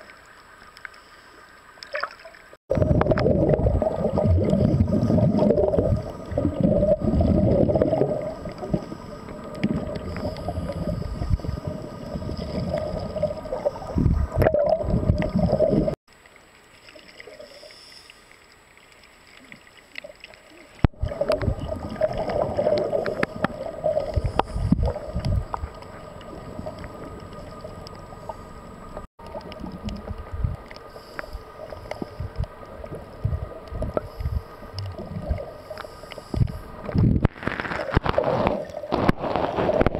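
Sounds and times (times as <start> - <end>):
diver exhaling bubbles: 2.7 - 16.0, 20.9 - 25.7
low underwater rumble: 2.7 - 16.0, 20.8 - 37.3.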